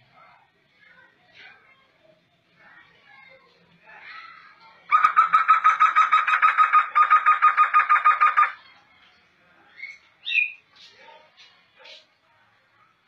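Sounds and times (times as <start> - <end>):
bird calling repeated notes: 4.9 - 8.6.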